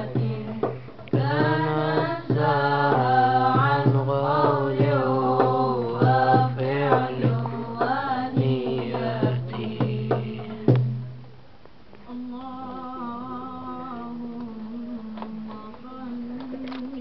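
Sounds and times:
boys singing devotional song: 0.0s - 11.1s, 12.1s - 17.0s
hand drum strokes: 0.0s - 11.2s.

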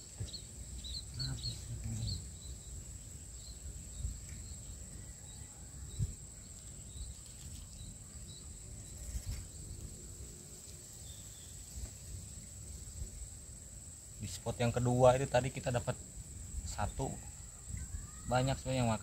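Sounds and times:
faint bird chirps: 0.0s - 10.0s, 16.6s - 19.0s.

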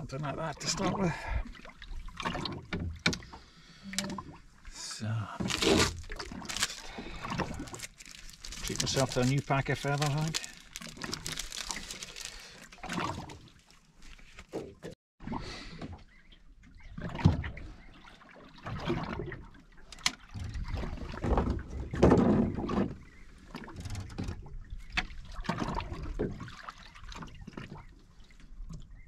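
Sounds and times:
water slapping against boat hull: 18.2s - 27.9s.

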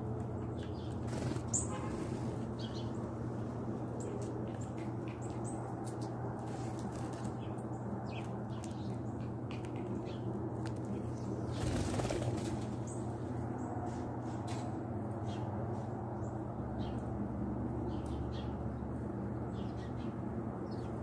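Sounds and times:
bird wings flapping: 1.0s - 2.0s, 11.5s - 12.9s.

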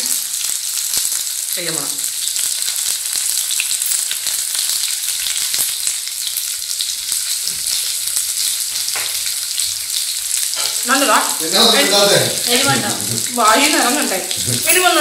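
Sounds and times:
food sizzling in hot oil: 0.0s - 15.0s
person speaking: 10.8s - 15.0s.

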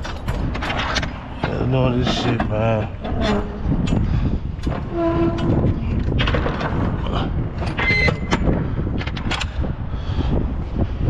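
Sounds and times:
low rumble: 0.0s - 11.0s
high metallic squeal: 3.0s - 3.8s, 4.9s - 5.9s.

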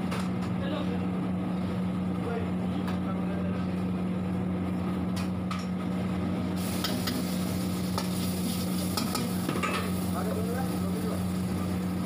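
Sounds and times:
gravy sizzling in hot oil: 6.5s - 12.0s.

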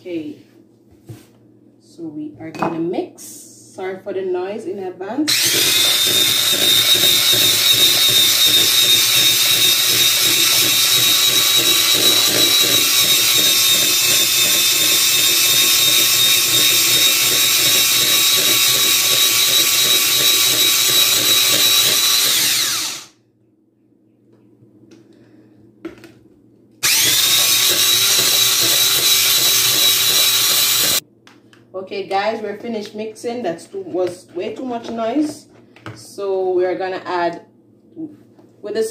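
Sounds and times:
stick blender motor whine: 5.3s - 23.2s, 26.8s - 31.0s.

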